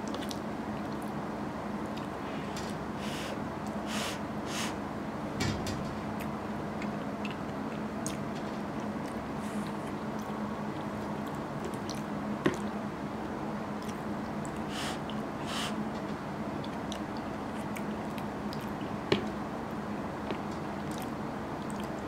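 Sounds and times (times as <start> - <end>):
chewing food: 0.0 - 1.2, 6.2 - 12.8, 13.8 - 14.6, 16.6 - 18.9, 19.7 - 22.0
steady low hum: 0.0 - 22.0.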